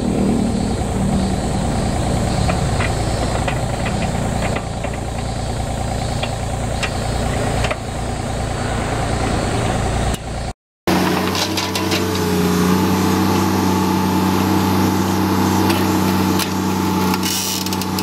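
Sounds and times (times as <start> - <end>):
diesel engine idling: 0.0 - 18.0.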